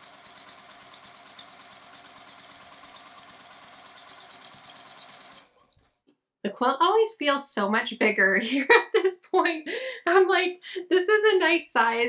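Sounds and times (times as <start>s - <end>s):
sewing machine stitching: 0.0s - 6.0s.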